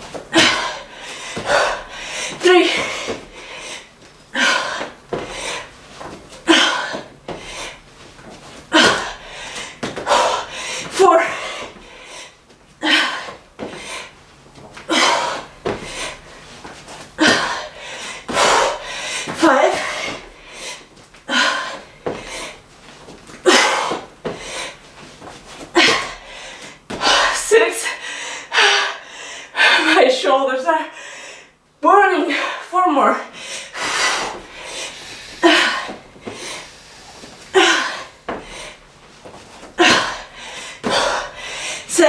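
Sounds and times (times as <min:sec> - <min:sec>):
person exhaling hard while exercising: 0:00.3 - 0:05.7, 0:17.2 - 0:22.6, 0:33.4 - 0:38.8
woman breathing hard: 0:00.3 - 0:08.0, 0:08.7 - 0:14.2, 0:14.8 - 0:22.7, 0:23.4 - 0:24.8, 0:25.7 - 0:30.0, 0:30.8 - 0:31.6, 0:33.2 - 0:38.9, 0:39.7 - 0:42.0.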